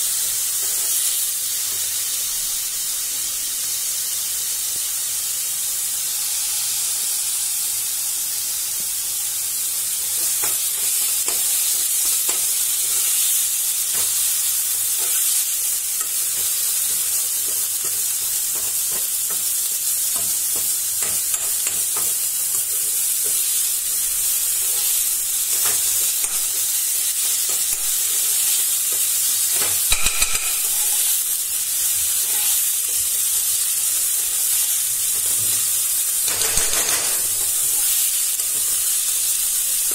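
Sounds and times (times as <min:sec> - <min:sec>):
food sizzling in hot oil: 0:00.0 - 0:39.9
spatula scraping and knocking pan: 0:24.5 - 0:31.3, 0:36.3 - 0:38.8
ringing clink: 0:29.9 - 0:31.0.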